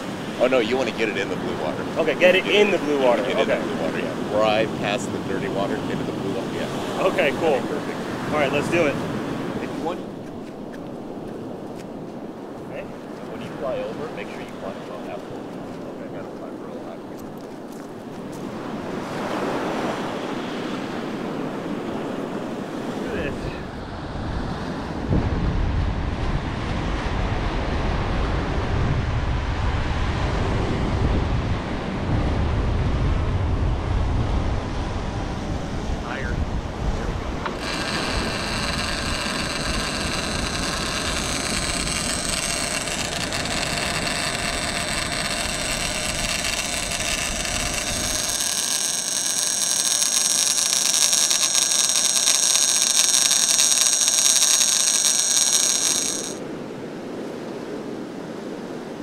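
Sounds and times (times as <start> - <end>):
wind buffeting microphone: 0.0 - 48.5
drone propellers whining: 37.2 - 56.4.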